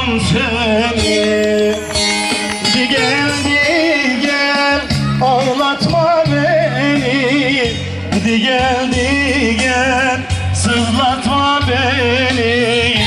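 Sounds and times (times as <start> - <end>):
sustained low bass notes: 0.0 - 13.0
ornamented trilling melody: 0.4 - 5.7.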